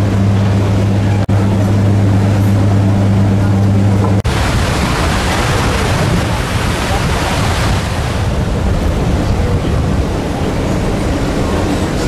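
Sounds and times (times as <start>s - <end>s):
sea water rushing alongside ship: 0.0s - 12.0s
wind buffeting microphone: 0.0s - 12.0s.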